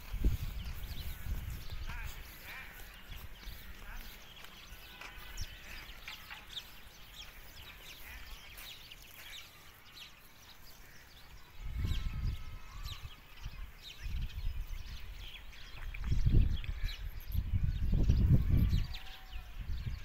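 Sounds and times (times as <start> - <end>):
wind buffeting microphone: 0.0 - 8.6, 11.2 - 20.0
small birds chirping: 0.0 - 20.0.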